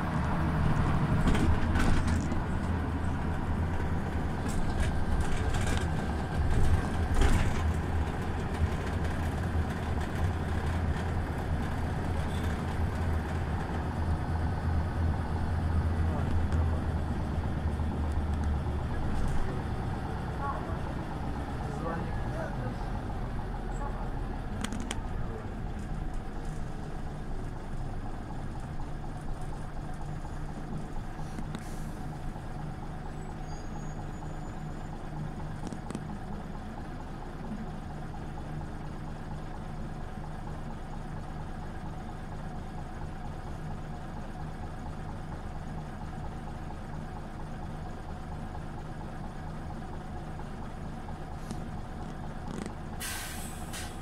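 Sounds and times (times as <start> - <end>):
bus engine humming: 0.0 - 54.0
brief hiss: 53.0 - 54.0.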